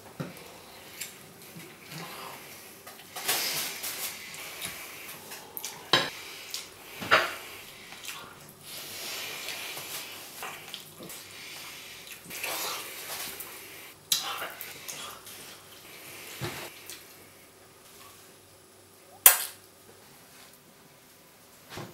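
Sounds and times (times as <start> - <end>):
wet food handling noises: 0.0 - 17.2.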